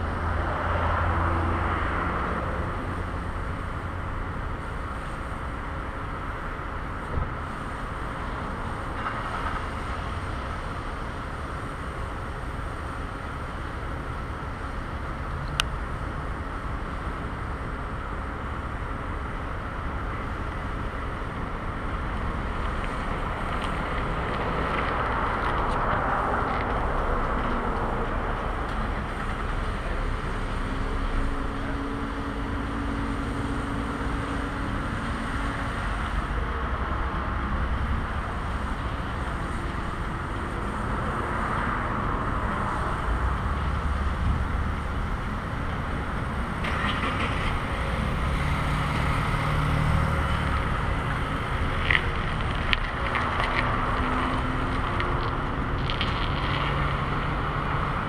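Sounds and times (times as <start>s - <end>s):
car engine approaching: 0.0s - 58.0s
cars and trucks passing: 0.0s - 58.0s.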